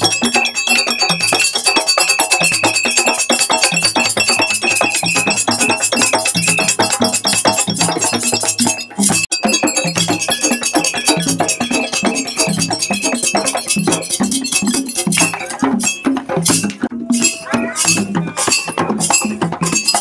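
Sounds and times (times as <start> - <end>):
djembe drumming: 0.0 - 20.0
high ringing tone: 16.9 - 19.3.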